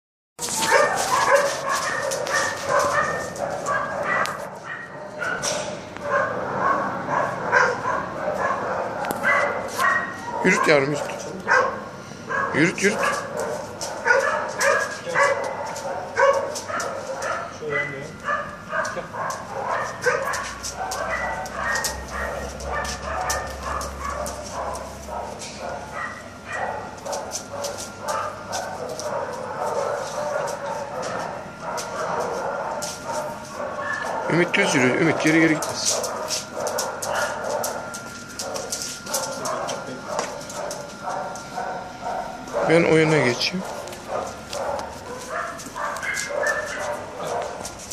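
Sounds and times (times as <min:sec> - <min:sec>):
dog claws clicking on tiles: 0:00.4 - 0:04.5, 0:18.8 - 0:25.6, 0:35.2 - 0:41.5.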